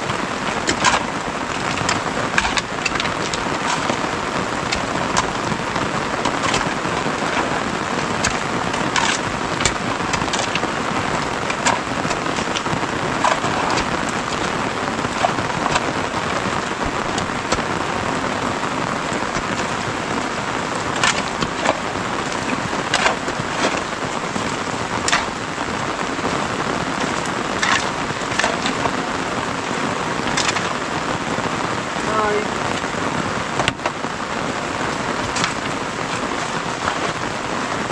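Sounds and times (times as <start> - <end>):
shovels digging into wet mud: 0.0 - 17.9, 19.1 - 25.5, 26.8 - 29.1, 30.3 - 30.8, 35.3 - 37.2
steady rain: 0.0 - 37.9.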